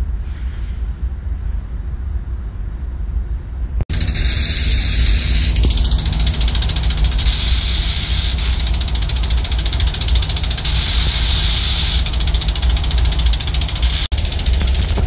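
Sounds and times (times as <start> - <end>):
hissing fast chatter: 3.9 - 14.5
diesel locomotive engine rumble: 3.9 - 15.0.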